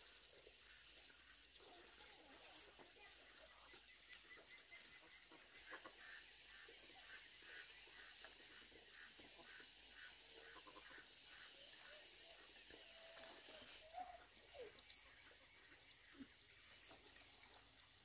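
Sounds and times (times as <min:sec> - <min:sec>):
steady high hiss: 0:00.0 - 0:18.0
faint repeating animal call: 0:04.8 - 0:16.4.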